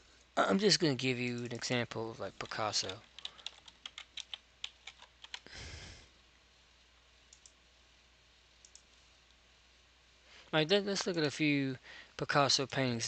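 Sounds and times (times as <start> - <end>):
computer keyboard typing: 2.4 - 5.5, 7.3 - 7.6
faint clicks: 7.3 - 7.6, 8.6 - 9.4.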